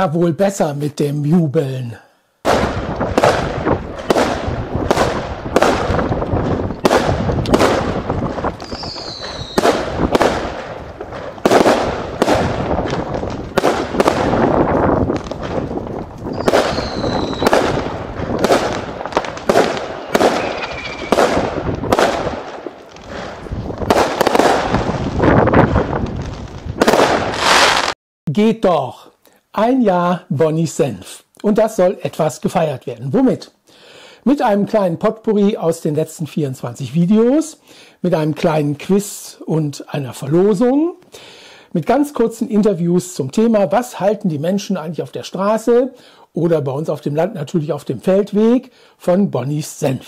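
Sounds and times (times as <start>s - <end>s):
fireworks bangs and crackles: 2.4s - 28.0s
falling firework whistle: 8.6s - 9.8s, 16.3s - 17.7s, 20.0s - 21.4s.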